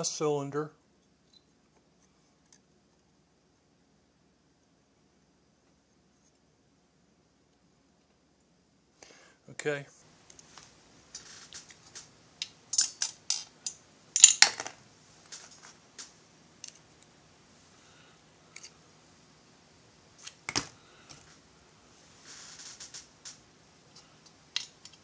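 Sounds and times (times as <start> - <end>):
metal parts and tools clicking: 11.2 - 14.7, 23.9 - 25.0.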